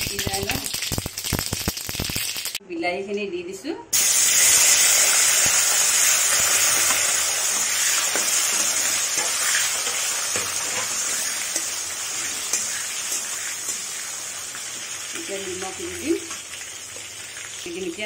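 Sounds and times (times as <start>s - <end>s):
tomato pieces sizzling in hot oil: 0.0s - 2.6s, 4.0s - 18.0s
metal spatula scraping a pan: 6.3s - 15.7s.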